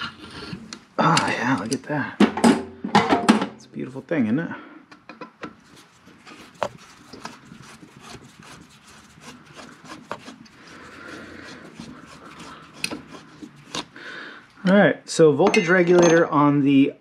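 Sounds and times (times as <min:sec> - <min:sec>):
screwdriver scraping metal: 0:06.2 - 0:14.0.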